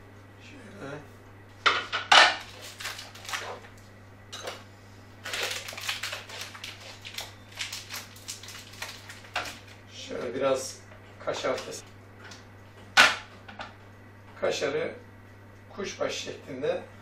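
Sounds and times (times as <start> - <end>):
plastic wrapping crinkling: 2.2 - 3.9, 5.2 - 9.9.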